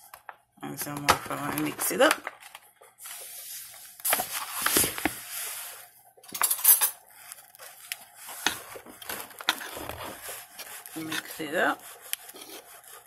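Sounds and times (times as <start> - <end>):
metal spoon scraping bowl: 9.3 - 13.0.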